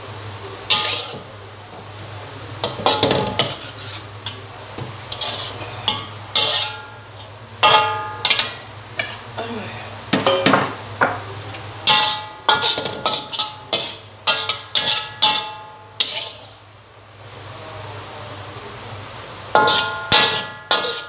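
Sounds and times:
metal ladle scraping a wok: 0.7 - 1.3, 2.6 - 4.4, 5.0 - 9.3, 11.8 - 16.6, 19.6 - 21.0.

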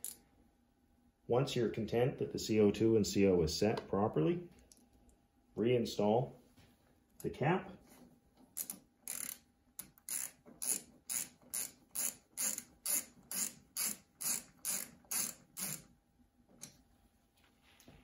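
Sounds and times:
ratchet wrench clicking: 0.0 - 0.2, 8.6 - 15.9.

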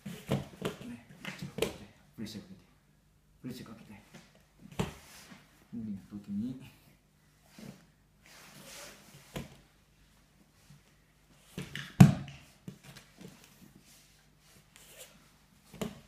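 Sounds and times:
body slapping on mat: 11.6 - 12.8.

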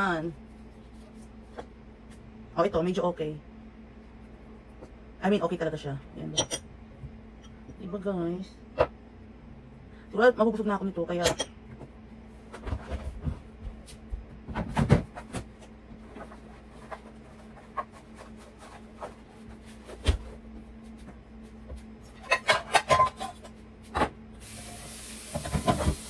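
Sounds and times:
knocks and clicks in kitchen: 11.2 - 16.0
steady hiss: 24.4 - 26.0.

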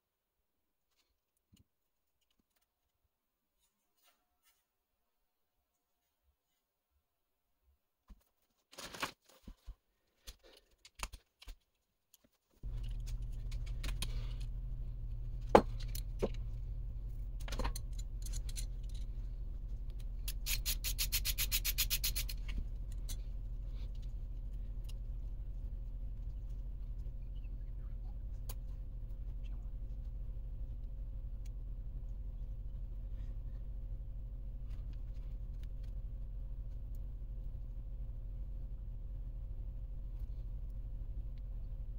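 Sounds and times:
low electrical hum: 12.6 - 41.9
metal parts clinking: 17.4 - 19.1.

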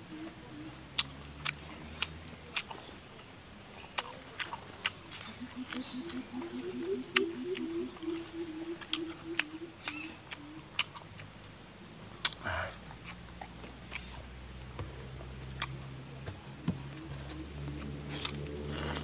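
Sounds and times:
steady high whine: 0.0 - 19.0
man chewing crunchy vegetables: 0.9 - 3.1, 3.7 - 6.3, 8.8 - 11.4, 12.1 - 15.8, 17.2 - 19.0
mouth clicks: 3.9 - 11.3
low hum: 4.8 - 19.0.

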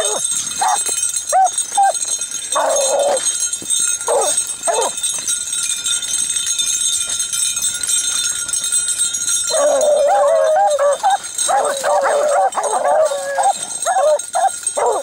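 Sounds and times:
dogs yipping: 0.0 - 5.3, 9.4 - 15.0
dogs pushing through dry grass: 0.0 - 5.4, 9.4 - 15.0.

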